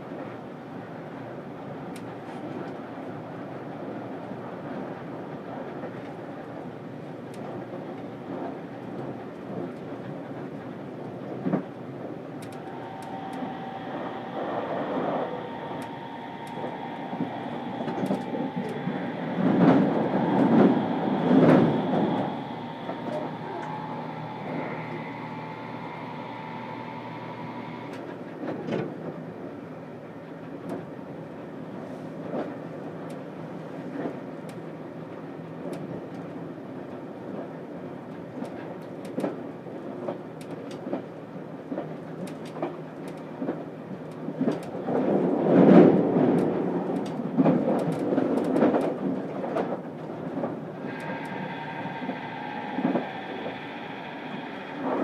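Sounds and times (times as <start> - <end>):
train cabin rumble: 0.0 - 55.0
train whine: 0.0 - 55.0
wheels clicking over rail joints: 36.9 - 51.4.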